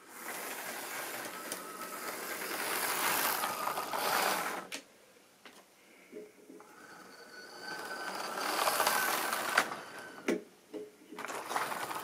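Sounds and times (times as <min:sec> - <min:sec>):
model train running past: 0:00.0 - 0:04.7, 0:07.0 - 0:10.2, 0:11.2 - 0:12.0.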